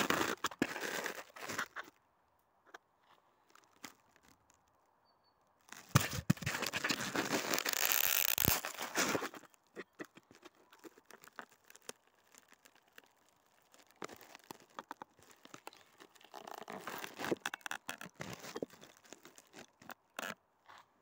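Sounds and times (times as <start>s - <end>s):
footsteps crunching in snow: 5.7s - 17.4s.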